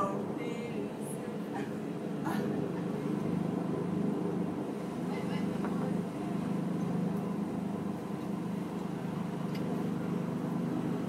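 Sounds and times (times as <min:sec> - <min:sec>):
helicopter rotor drone: 0:00.0 - 0:11.0.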